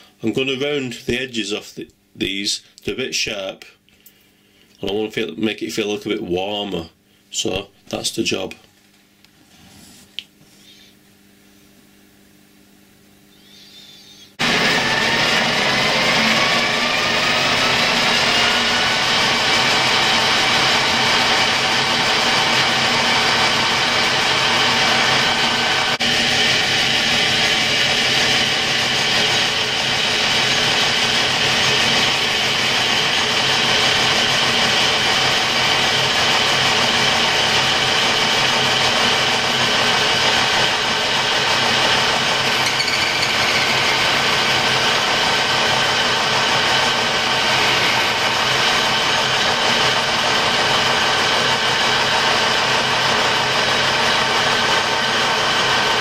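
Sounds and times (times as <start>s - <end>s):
lathe tool cutting metal ring: 14.4s - 56.0s
metal lathe humming: 14.4s - 56.0s.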